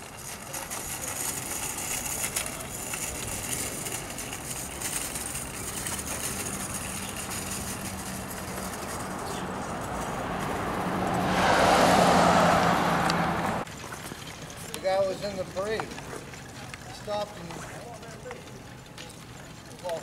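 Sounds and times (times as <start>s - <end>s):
passing vehicles: 0.0s - 13.7s
low engine hum: 2.6s - 13.7s.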